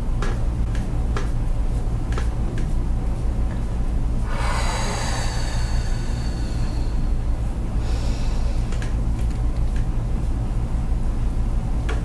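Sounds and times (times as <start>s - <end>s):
steady low hum: 0.0s - 12.0s
short sharp breath: 4.2s - 7.2s, 7.8s - 8.8s
person breathing out heavily: 4.2s - 8.9s.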